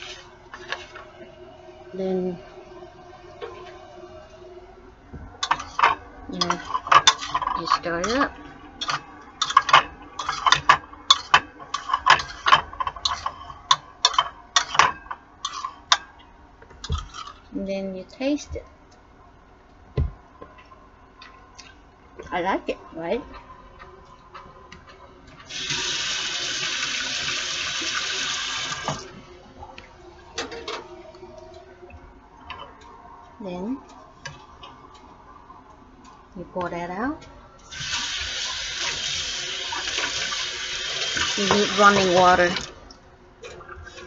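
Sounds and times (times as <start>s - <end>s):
faucet running into steel sink: 25.5s - 29.1s, 37.7s - 42.7s.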